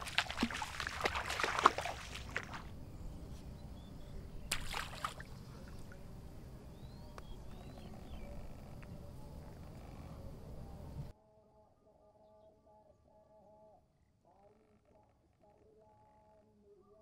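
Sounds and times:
water sloshing and splashing: 0:00.0 - 0:02.7, 0:04.5 - 0:06.1.

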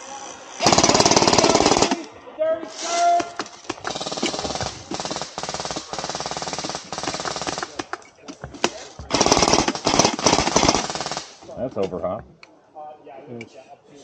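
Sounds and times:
toy machine gun firing bursts: 0:00.6 - 0:02.1, 0:03.8 - 0:07.8, 0:09.1 - 0:11.4.

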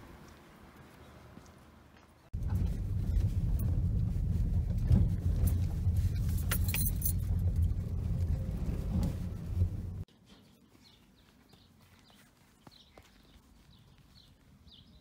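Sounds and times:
car rumbling on rough road: 0:02.3 - 0:10.1
brief rattles: 0:04.6 - 0:10.0.

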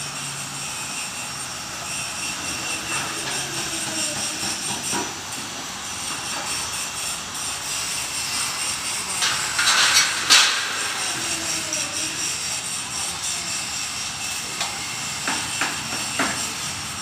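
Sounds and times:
winch and cable running: 0:00.0 - 0:17.0
metallic rattle: 0:09.0 - 0:11.6.

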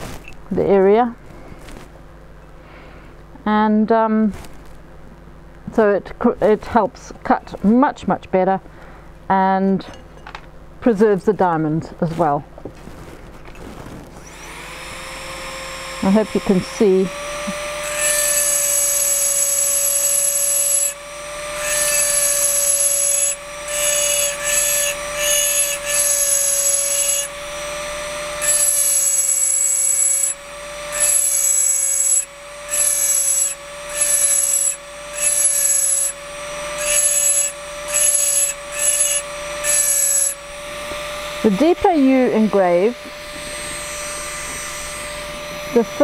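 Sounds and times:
burr grinding glass: 0:12.1 - 0:46.0
drill motor whine: 0:14.1 - 0:46.0.

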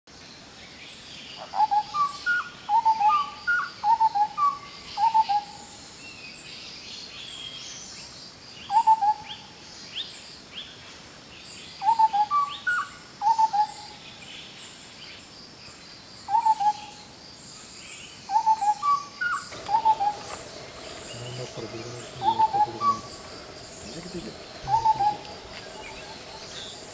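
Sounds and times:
high bird chirps: 0:18.3 - 0:26.9.

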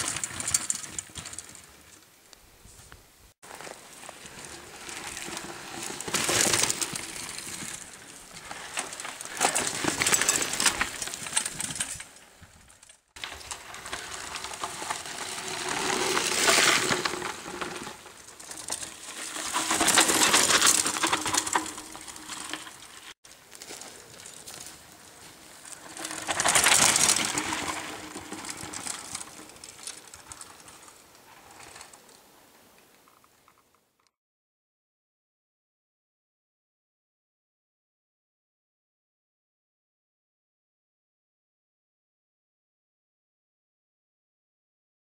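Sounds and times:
bikes clicking and rattling: 0:00.0 - 0:02.1, 0:03.5 - 0:32.2
bike tyres crunching on dirt: 0:00.0 - 0:32.1.

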